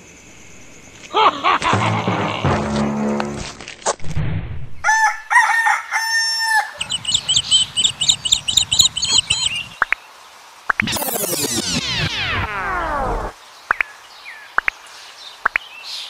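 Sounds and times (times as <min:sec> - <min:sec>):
rooster crowing: 0:04.8 - 0:06.9
small birds chirping: 0:06.8 - 0:16.0.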